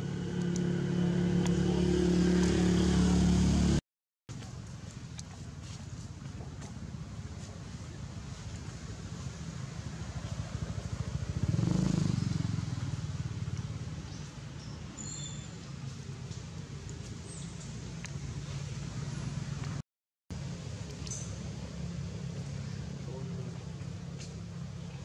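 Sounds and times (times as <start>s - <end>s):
low motor drone: 0.0s - 3.8s.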